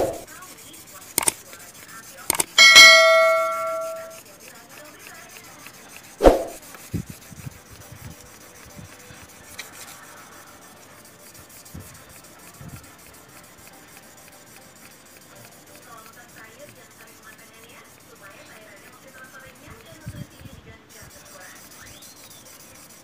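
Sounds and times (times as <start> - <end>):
stone scrubbing on wet sandpaper: 0.0 - 2.5, 4.1 - 23.0
bell-like ding: 2.6 - 4.1
sharp knock: 6.2 - 6.6.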